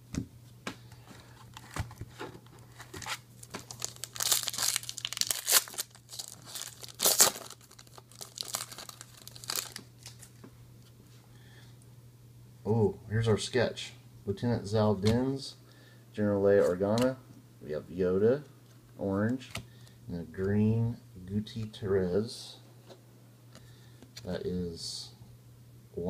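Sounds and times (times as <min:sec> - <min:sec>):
foil wrapper tearing and crinkling: 0:03.0 - 0:10.4.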